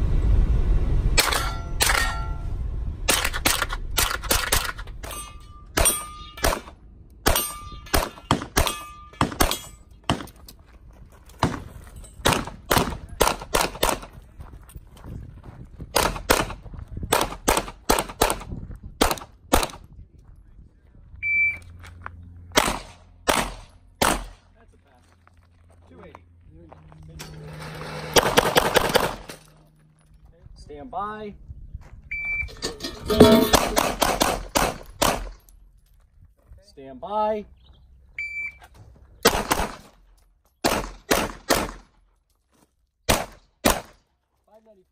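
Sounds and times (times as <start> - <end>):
handgun shots: 12.2 - 14.1, 16.0 - 19.8, 22.6 - 24.4, 33.3 - 35.4, 39.2 - 39.9, 40.6 - 41.9, 43.1 - 44.0
shot timer beep: 21.2 - 21.6.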